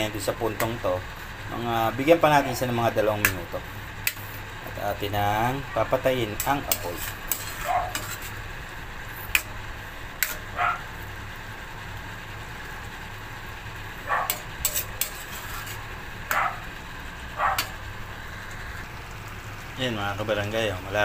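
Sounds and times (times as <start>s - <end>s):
steady low hum: 0.0s - 21.0s
metal spoon scraping pan: 4.1s - 4.4s, 6.2s - 8.4s, 9.2s - 9.6s, 10.2s - 10.6s, 14.2s - 16.4s.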